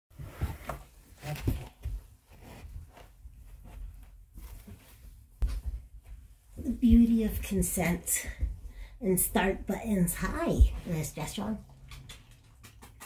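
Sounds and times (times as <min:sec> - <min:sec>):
boot footsteps on rug: 0:01.6 - 0:07.6.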